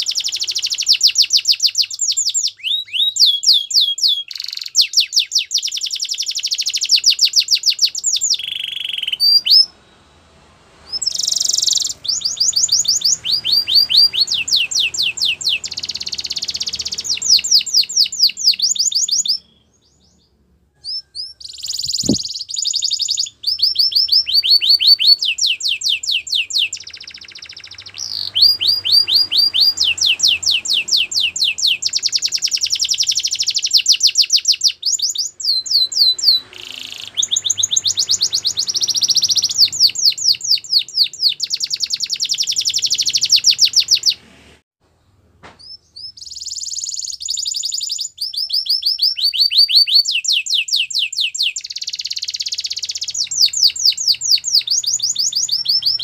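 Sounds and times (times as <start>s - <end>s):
canary singing trills: 0.0s - 10.1s, 10.8s - 44.2s, 45.6s - 56.0s
sharp click: 21.7s - 22.3s.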